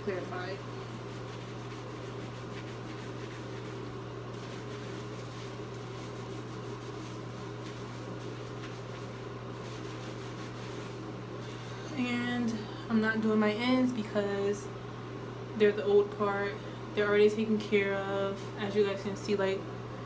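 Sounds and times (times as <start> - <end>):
mechanical fan hum: 0.0 - 20.0
fingers scrubbing hair: 0.7 - 11.6.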